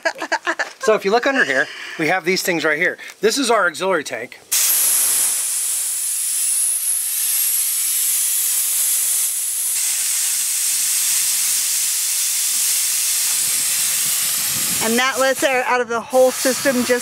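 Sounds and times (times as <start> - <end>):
compressed air hissing: 4.5 - 17.0.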